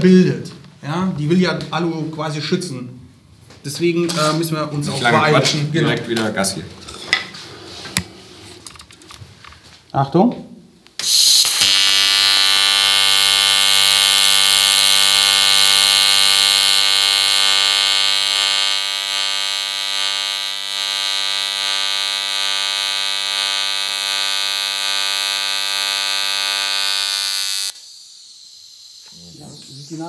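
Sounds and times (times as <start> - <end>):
welding arc buzzing: 10.9 - 30.0.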